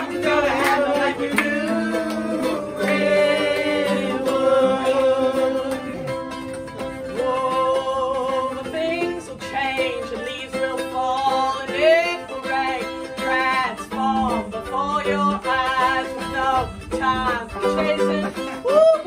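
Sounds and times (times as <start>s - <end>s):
woman singing: 0.0s - 6.0s, 7.0s - 19.0s
ukulele and mandolin strumming: 0.0s - 19.0s.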